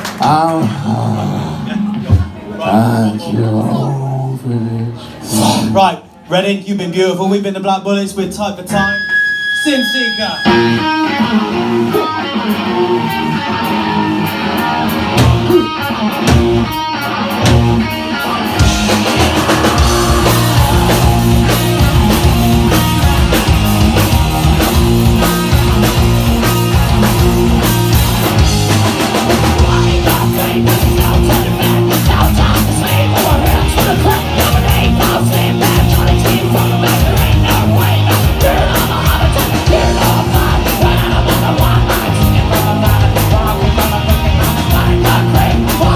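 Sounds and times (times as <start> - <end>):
rock band playing: 1.6 - 3.1, 8.6 - 45.9
electric guitar: 8.8 - 45.9
drum hits: 18.6 - 45.9.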